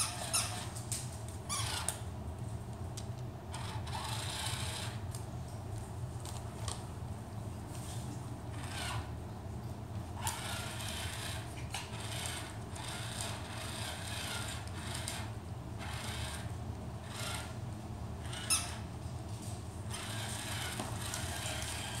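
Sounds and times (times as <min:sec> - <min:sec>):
high squeak: 0:00.0 - 0:00.7, 0:18.3 - 0:18.8
toy motor and gears whirring: 0:00.0 - 0:00.8, 0:01.5 - 0:02.0, 0:03.5 - 0:05.1, 0:08.5 - 0:09.1, 0:10.2 - 0:17.6, 0:18.2 - 0:18.9, 0:19.9 - 0:22.0.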